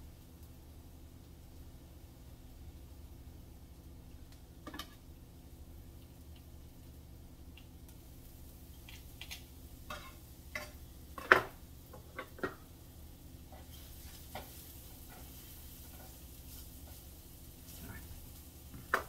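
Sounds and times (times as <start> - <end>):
food sizzling: 0.0 - 19.0
metal utensils clacking on frying pan: 8.9 - 12.6.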